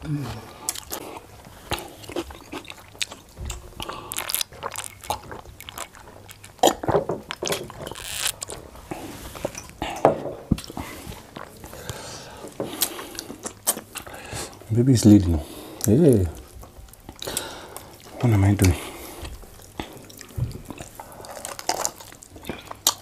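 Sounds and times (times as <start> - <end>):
chewing: 0.3 - 23.0
lip-smacking and mouth clicks: 1.7 - 8.6.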